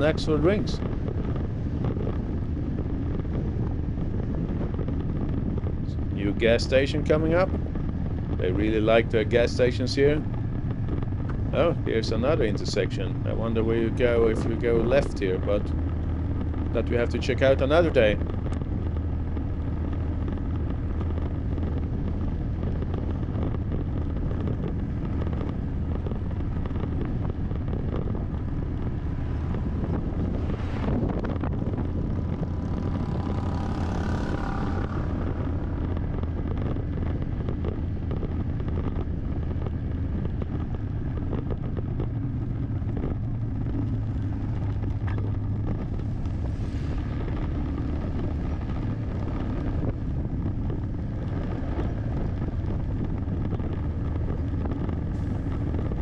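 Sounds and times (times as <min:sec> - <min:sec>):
car engine and tyre noise: 0:00.0 - 0:56.0
vehicles passing: 0:00.0 - 0:56.0.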